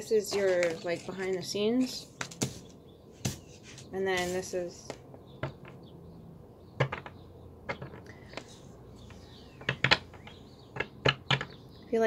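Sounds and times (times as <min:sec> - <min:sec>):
cards tapping on wooden table: 0:02.2 - 0:03.5, 0:06.8 - 0:11.5.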